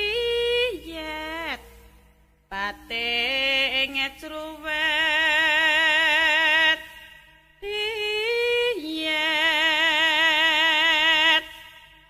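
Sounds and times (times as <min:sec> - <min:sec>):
person singing with vibrato: 0:00.0 - 0:12.0.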